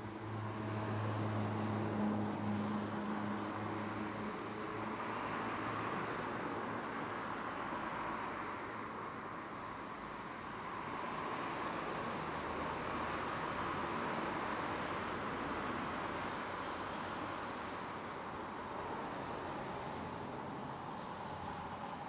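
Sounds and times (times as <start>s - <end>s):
distant traffic hiss: 11.0s - 22.0s.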